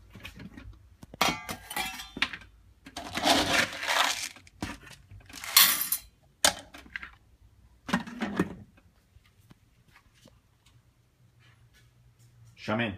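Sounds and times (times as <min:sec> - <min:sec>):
dry food rattling into bowl: 0:03.0 - 0:06.0.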